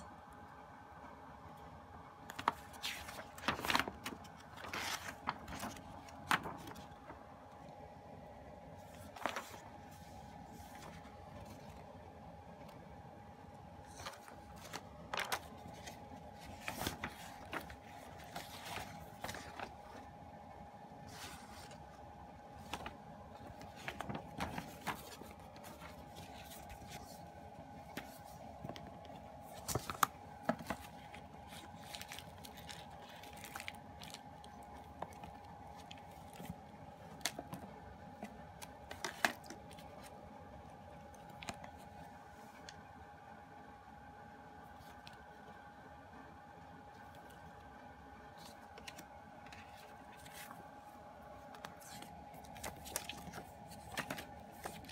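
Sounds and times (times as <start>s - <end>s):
pages turning: 2.2s - 7.2s, 8.8s - 11.9s, 13.9s - 20.1s, 21.0s - 22.0s, 22.6s - 40.2s, 41.1s - 42.7s, 48.3s - 54.9s
plastic wrap rustling: 2.3s - 7.1s, 29.4s - 37.6s.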